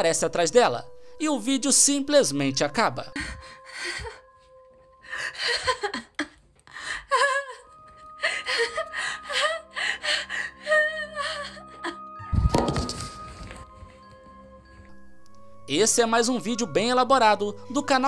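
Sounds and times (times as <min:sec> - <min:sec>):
woman gasping and giggling: 0:03.1 - 0:12.3.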